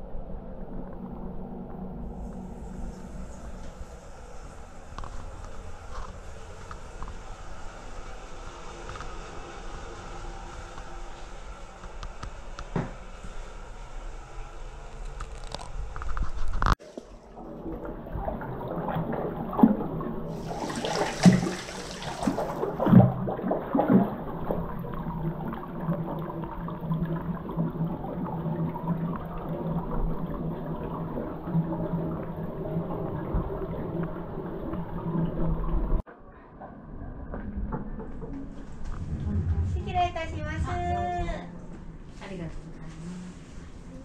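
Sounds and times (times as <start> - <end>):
water pouring into wooden tub: 16.8 - 36.0
water churning and splashing: 16.8 - 36.1.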